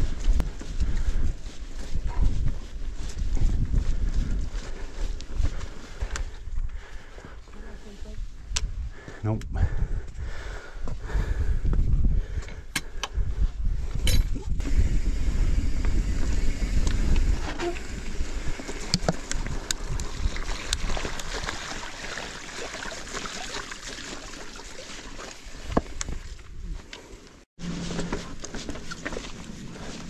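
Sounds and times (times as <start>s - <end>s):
wind rumble on microphone: 0.0s - 7.1s, 7.7s - 21.6s
bike tyres splashing on stones: 15.7s - 26.0s.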